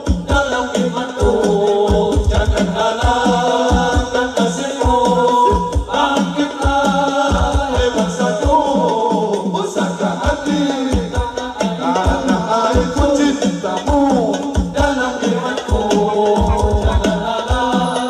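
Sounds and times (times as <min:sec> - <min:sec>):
frame drums: 0:00.0 - 0:18.0
person singing: 0:00.0 - 0:18.0.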